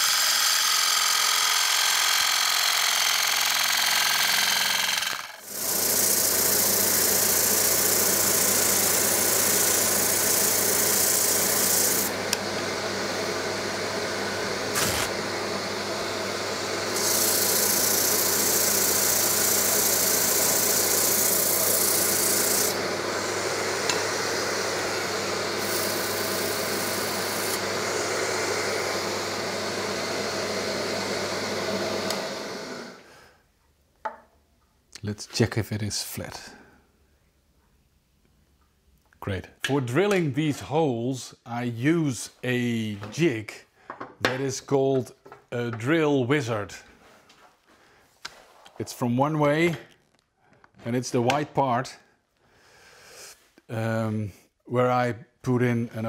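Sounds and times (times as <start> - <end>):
lathe motor humming: 0.0 - 33.0.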